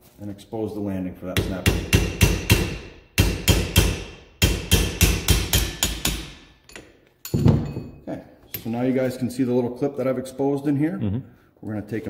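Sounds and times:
hammer striking steel punch: 0:01.4 - 0:06.6.

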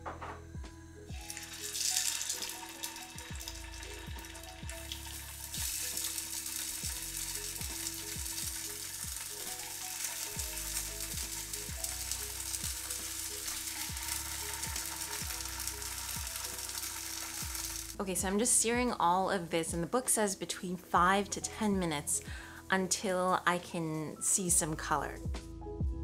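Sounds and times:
soft background music: 0:00.0 - 0:26.0
cakes sizzling in hot oil: 0:01.1 - 0:18.0.

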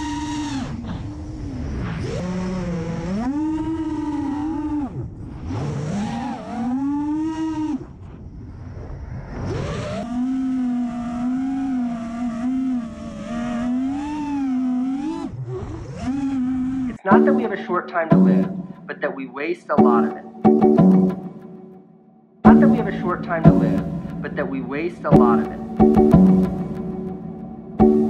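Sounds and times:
drone motors and propellers whining: 0:00.0 - 0:16.9.

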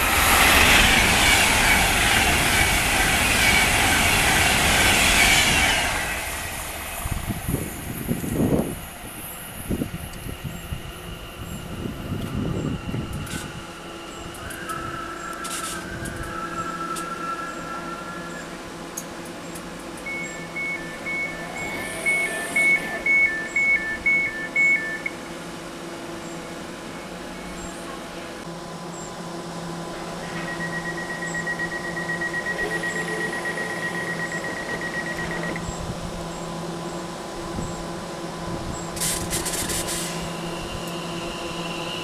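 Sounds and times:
electric train equipment humming: 0:00.0 - 0:42.0
train whine moving off: 0:00.0 - 0:42.0
two-tone door warning beeps: 0:20.0 - 0:25.2, 0:30.3 - 0:35.7
rapidly pulsed beep: 0:20.1 - 0:25.1, 0:30.4 - 0:35.6
burst of hiss: 0:39.0 - 0:40.6.

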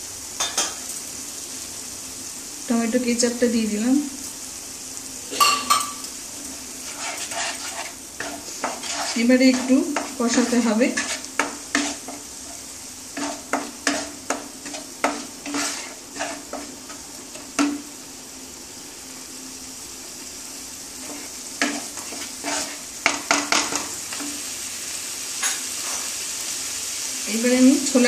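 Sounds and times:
paste sizzling in oil: 0:00.0 - 0:28.0
wooden spatula scraping a pan: 0:06.4 - 0:17.9, 0:21.0 - 0:24.5, 0:25.4 - 0:26.2.

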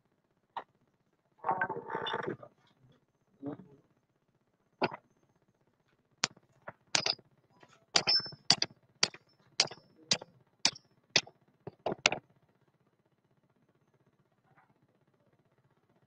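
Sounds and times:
hammer striking metal shackle: 0:07.0 - 0:07.2, 0:08.0 - 0:12.2.

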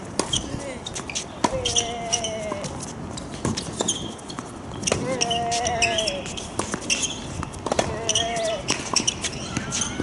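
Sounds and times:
rackets striking tennis ball: 0:02.6 - 0:10.0.

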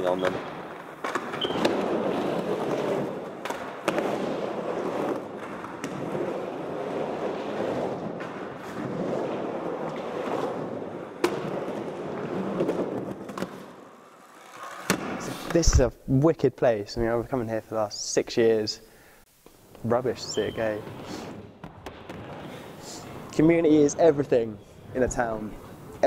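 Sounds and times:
skateboard wheels rolling on ramps: 0:00.0 - 0:15.8.

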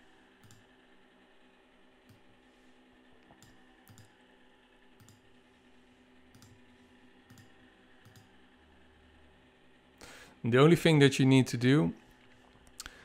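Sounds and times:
mouse and keyboard clicks: 0:03.3 - 0:04.2, 0:05.0 - 0:05.3, 0:06.3 - 0:06.6, 0:07.3 - 0:08.3.

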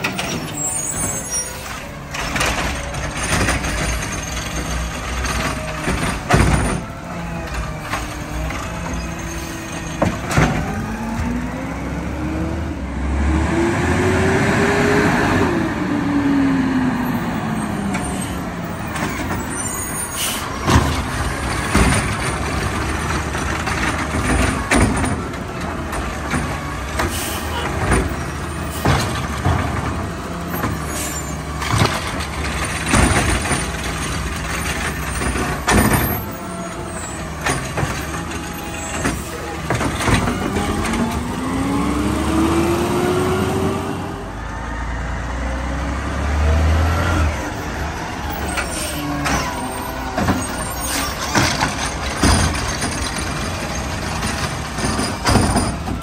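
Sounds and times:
hydraulic arm clunks and bangs: 0:00.0 - 0:11.6, 0:17.9 - 0:42.8, 0:48.2 - 0:56.0.

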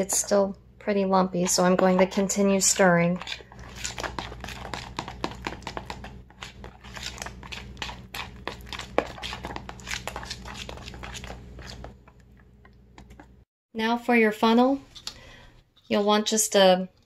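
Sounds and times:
spoon stirring batter in bowl: 0:00.0 - 0:12.4.

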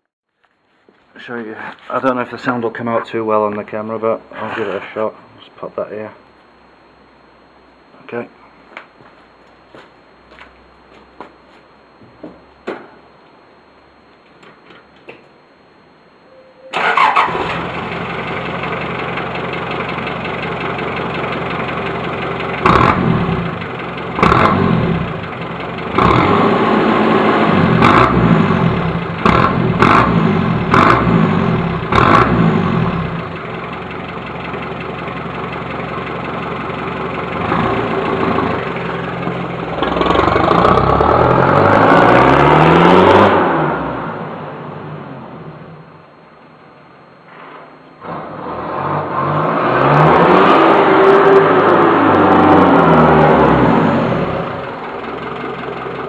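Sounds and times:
diesel engine starting and revving: 0:16.7 - 0:45.6, 0:48.0 - 0:56.0.

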